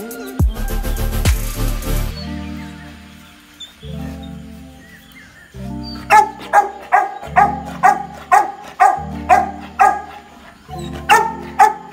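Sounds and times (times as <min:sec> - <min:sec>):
background music low notes: 0:00.0 - 0:11.9
large dog barking: 0:06.0 - 0:11.9.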